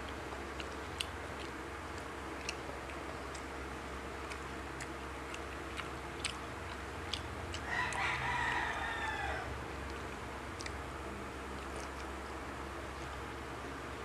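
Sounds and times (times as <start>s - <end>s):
small clicks of eating: 0.0s - 9.2s, 9.8s - 13.8s
rooster crowing: 7.6s - 9.6s.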